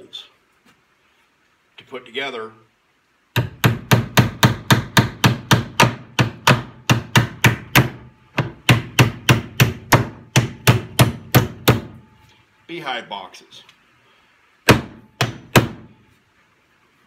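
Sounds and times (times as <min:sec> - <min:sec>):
hammer driving nails into wood: 0:03.4 - 0:12.0, 0:14.7 - 0:15.9.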